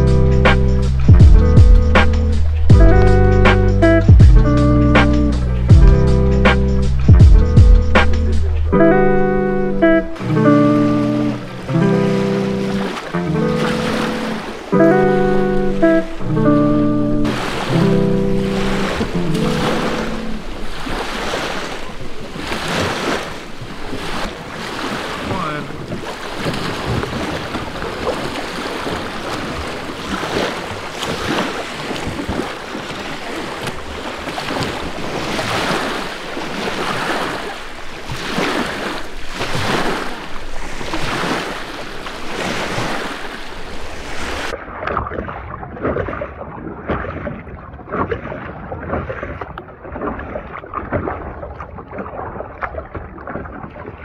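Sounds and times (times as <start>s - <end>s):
waves lapping against shore: 0.0s - 54.0s.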